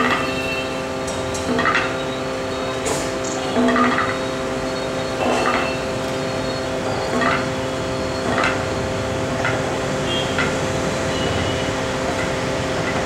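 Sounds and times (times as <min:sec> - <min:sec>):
steady drone of held tones: 0:00.0 - 0:13.0.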